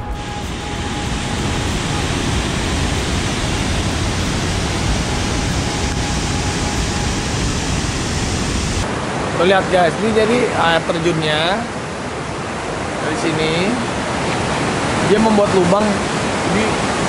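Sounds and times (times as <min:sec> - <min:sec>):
waterfall rushing: 0:00.0 - 0:09.9.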